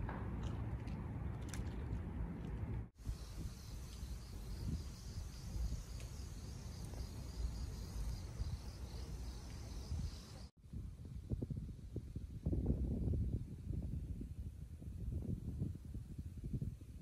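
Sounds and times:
wind rumble on microphone: 0.0 - 17.0
crickets chirping: 3.0 - 10.5.

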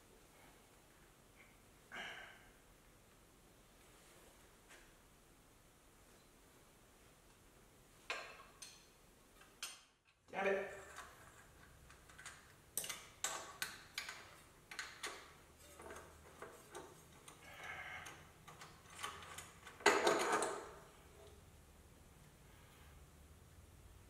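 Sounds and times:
hand tools clicking on metal: 10.9 - 20.7.

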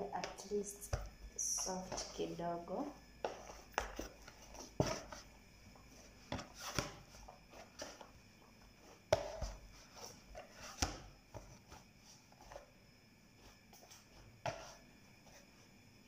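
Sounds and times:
dough kneading thumps: 0.0 - 12.7.

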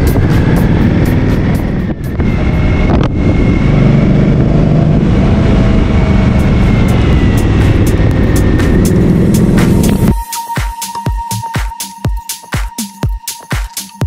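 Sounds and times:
wind buffeting microphone: 0.0 - 10.1
motorcycle engine running: 0.0 - 10.2.

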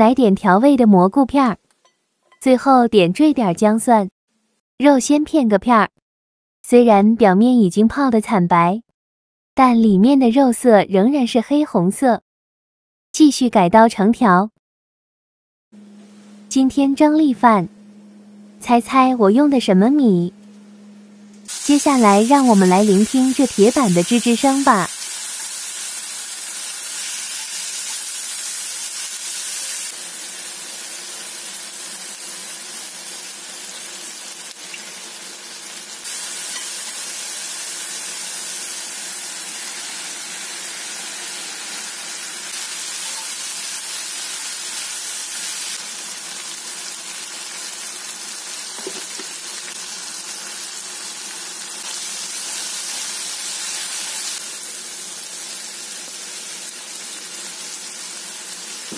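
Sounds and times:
meat and vegetables sizzling in skillet: 21.5 - 58.9.

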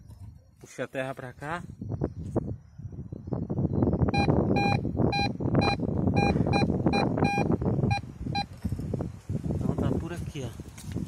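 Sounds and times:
metal detector beeps: 4.1 - 8.5.

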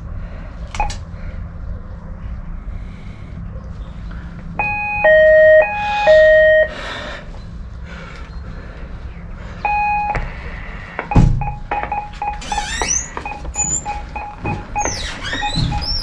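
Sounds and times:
electronic two-tone door chime: 4.6 - 6.7, 11.1 - 16.0.

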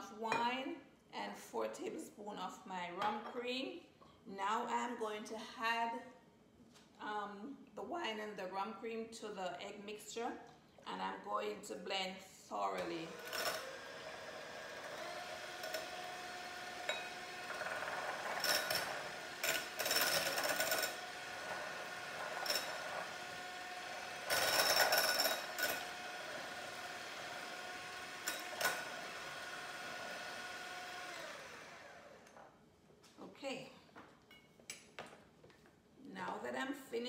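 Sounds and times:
electric mixer whining: 13.0 - 32.3
mixer churning and rattling: 13.1 - 32.0.

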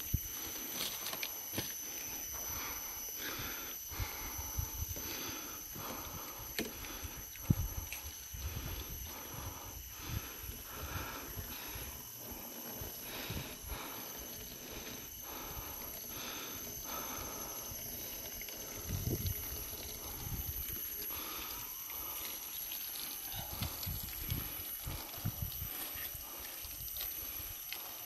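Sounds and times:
footsteps through dry brush: 0.0 - 1.8
insect drone: 0.0 - 28.0
steady hiss: 0.0 - 28.0
wind buffeting microphone: 18.8 - 20.7, 23.5 - 25.8.

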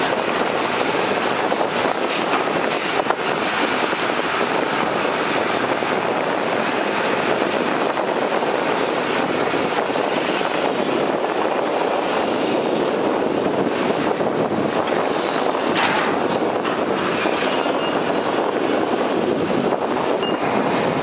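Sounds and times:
excavator engine and hydraulics: 0.0 - 21.0
soil and rocks into truck bed: 15.7 - 17.6.

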